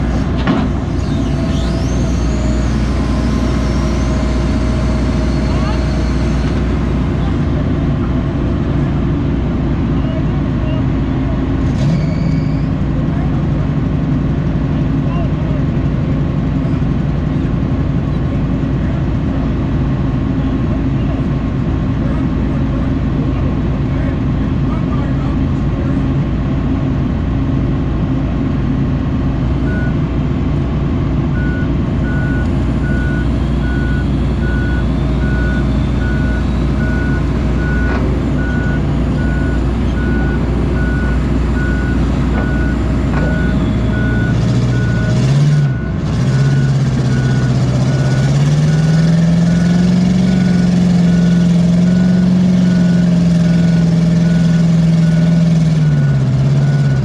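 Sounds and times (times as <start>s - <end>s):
excavator diesel engine: 0.0s - 57.0s
travel alarm beeping: 31.4s - 47.5s.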